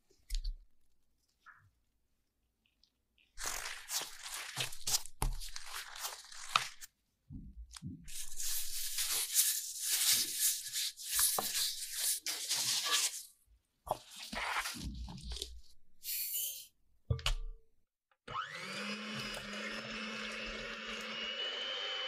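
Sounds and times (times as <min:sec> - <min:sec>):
dough crackling and tearing: 0:03.2 - 0:06.9.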